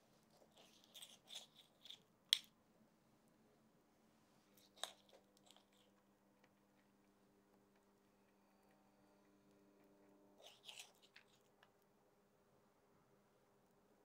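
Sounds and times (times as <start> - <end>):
faint steady hum: 0.0 - 14.0
spoons scraping sticky dough: 0.2 - 2.1, 10.4 - 11.6.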